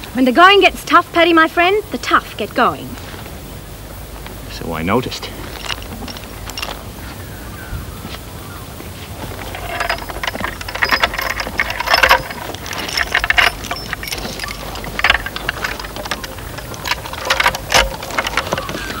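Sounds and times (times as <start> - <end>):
harness chains clinking: 5.0 - 7.0, 9.2 - 19.0.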